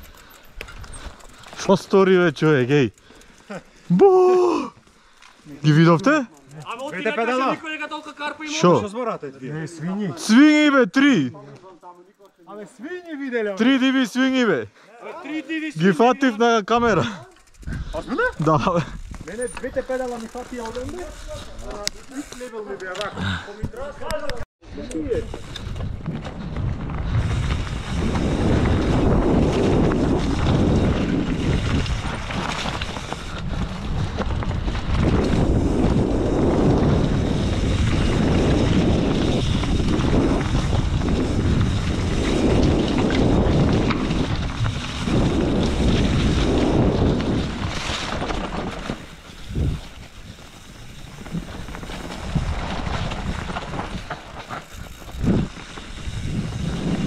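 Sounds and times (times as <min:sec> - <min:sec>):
wind buffeting microphone: 0:17.4 - 0:19.3, 0:25.1 - 0:57.0.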